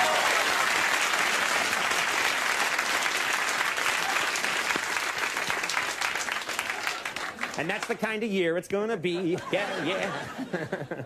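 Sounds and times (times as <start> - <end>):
audience applauding: 0.0 - 8.3.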